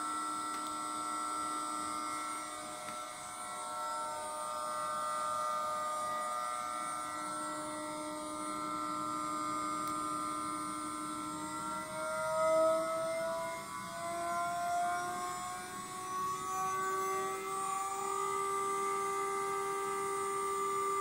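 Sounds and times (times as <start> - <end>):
router spindle whining: 0.0 - 21.0.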